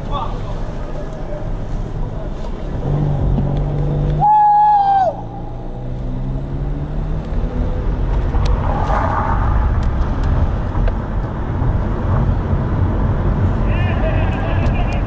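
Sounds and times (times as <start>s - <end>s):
motor vehicle rumbling: 0.0s - 15.0s.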